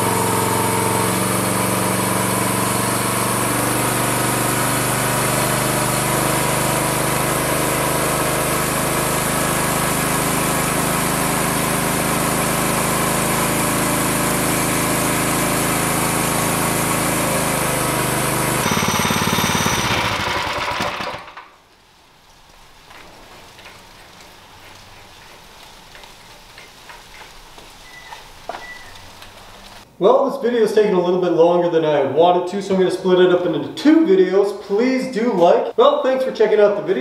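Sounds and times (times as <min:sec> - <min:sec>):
small engine running under load: 0:00.0 - 0:21.6.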